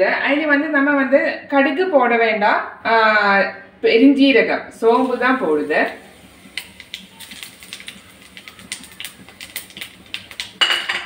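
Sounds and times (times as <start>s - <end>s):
seeds crackling in hot oil: 4.7s - 11.0s.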